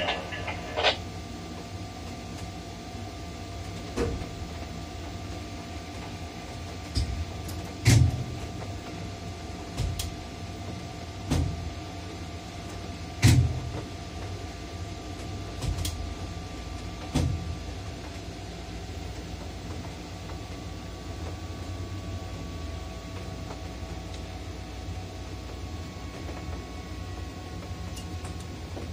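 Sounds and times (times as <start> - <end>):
faint whine: 0.0 - 1.9
crane cab low hum: 0.0 - 28.9.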